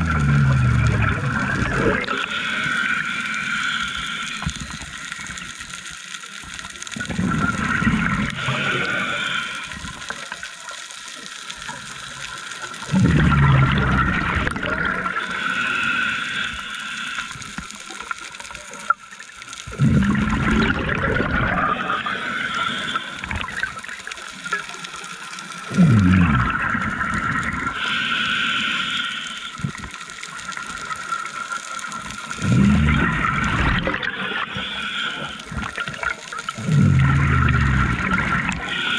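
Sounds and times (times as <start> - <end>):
gurgling rush of exhaled bubbles: 0.0 - 3.0, 7.0 - 10.0, 12.8 - 15.6, 19.6 - 24.6, 25.7 - 27.8, 32.3 - 38.9
regulator hiss: 0.0 - 20.7, 21.7 - 38.9.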